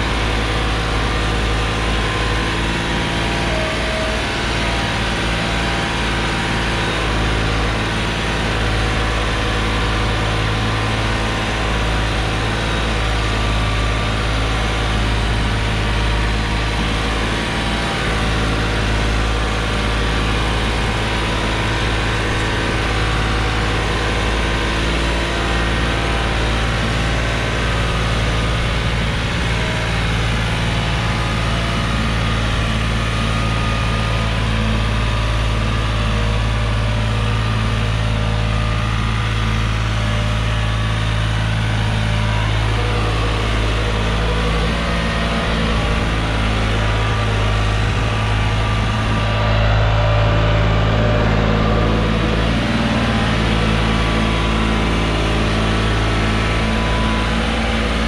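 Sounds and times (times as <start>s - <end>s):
tractor diesel engine under load: 0.0s - 58.0s.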